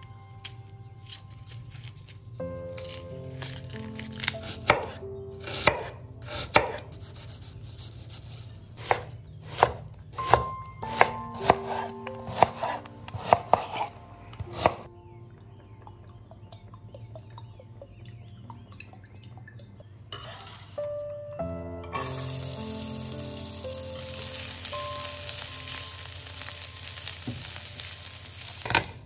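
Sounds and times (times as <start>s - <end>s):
knife chopping on cutting board: 4.2s - 7.3s, 8.8s - 14.8s.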